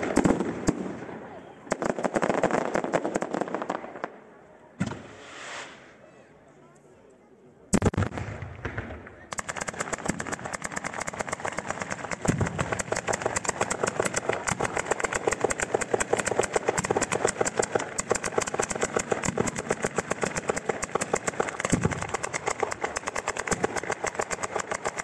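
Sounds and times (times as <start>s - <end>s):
firecracker bangs: 11.7s - 24.0s.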